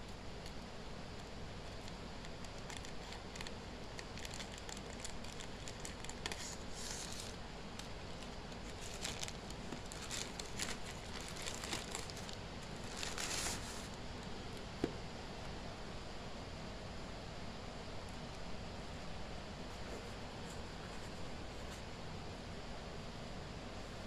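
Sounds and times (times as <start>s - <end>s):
plastic bag crinkling: 1.6s - 14.0s.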